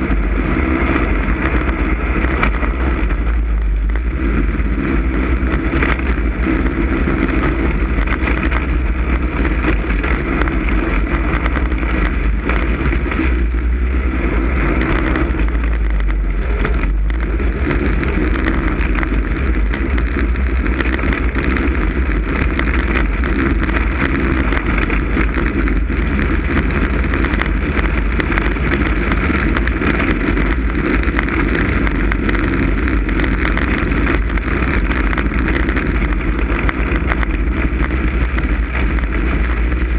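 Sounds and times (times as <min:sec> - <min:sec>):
snowmobile engine running: 0:00.0 - 0:39.9
wind buffeting microphone: 0:00.0 - 0:39.9.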